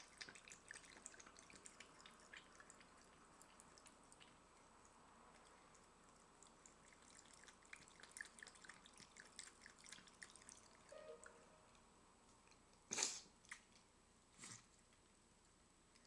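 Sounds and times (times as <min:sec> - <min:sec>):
cat lapping water: 0:00.0 - 0:10.9.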